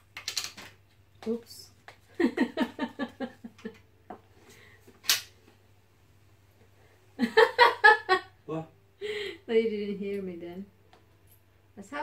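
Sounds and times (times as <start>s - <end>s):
woman laughing: 2.2s - 4.2s, 7.2s - 8.3s.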